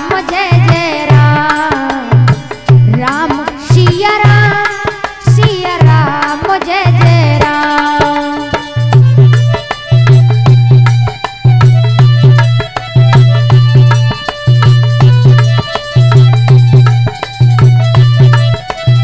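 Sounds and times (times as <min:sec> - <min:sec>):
woman singing: 0:00.0 - 0:08.8
held instrumental chords: 0:00.0 - 0:19.0
tabla rhythm: 0:00.0 - 0:19.0.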